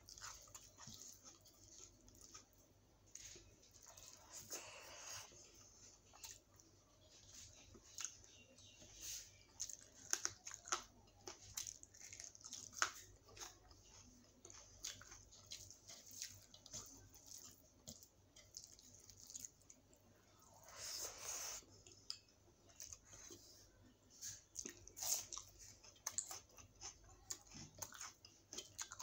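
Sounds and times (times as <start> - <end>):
person chewing: 0.0 - 29.0.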